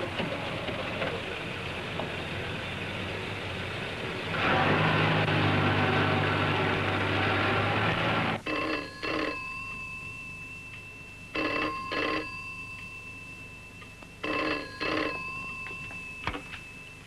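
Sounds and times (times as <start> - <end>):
car engine running: 0.0 - 8.4
telephone bell ringing: 8.4 - 17.0.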